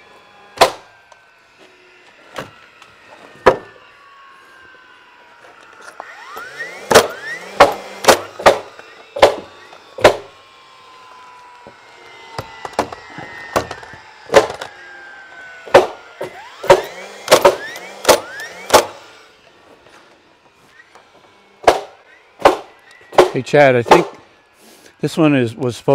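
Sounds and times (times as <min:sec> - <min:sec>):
faint falling whine: 0:00.0 - 0:25.9
nail gun shots: 0:00.5 - 0:00.9, 0:03.4 - 0:03.7, 0:06.8 - 0:10.3, 0:12.6 - 0:14.7, 0:15.6 - 0:19.1, 0:21.6 - 0:24.2.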